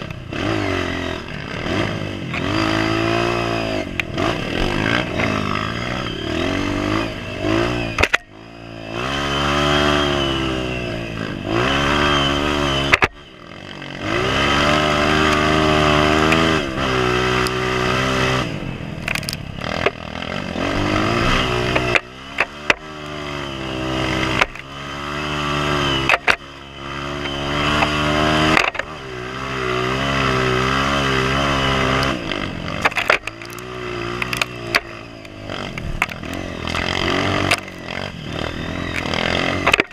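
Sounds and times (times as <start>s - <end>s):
dirt bike engine revving: 0.0s - 39.9s
bike knocks and clatter: 28.5s - 28.9s, 32.8s - 33.6s, 39.6s - 39.9s.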